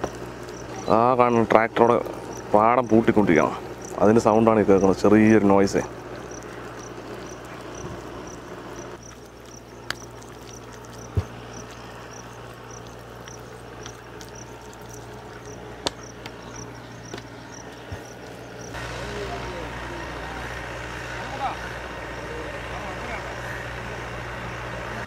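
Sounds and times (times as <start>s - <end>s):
insect chirping: 0.0s - 18.8s
tractor engine drone: 0.0s - 25.0s.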